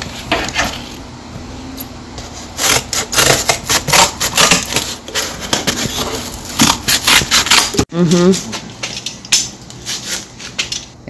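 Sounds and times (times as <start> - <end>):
scissors cutting cardboard: 2.3 - 7.9.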